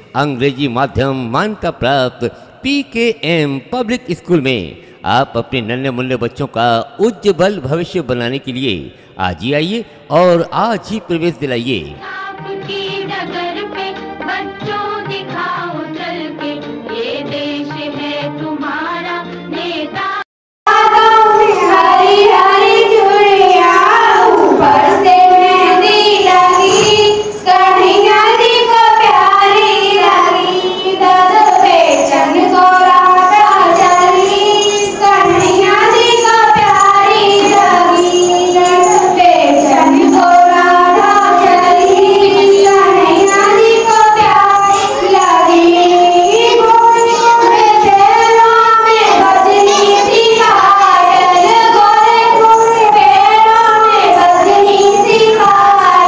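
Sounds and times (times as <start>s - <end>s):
high voice singing: 20.7s - 56.0s.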